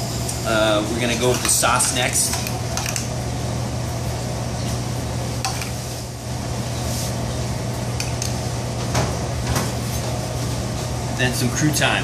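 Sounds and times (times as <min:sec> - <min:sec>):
kitchen ventilation hum and hiss: 0:00.0 - 0:12.0.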